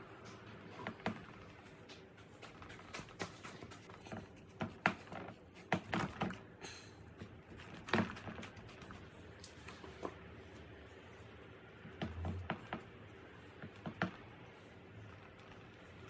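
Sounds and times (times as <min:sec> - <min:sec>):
hands patting paste in tray: 0:00.2 - 0:06.5.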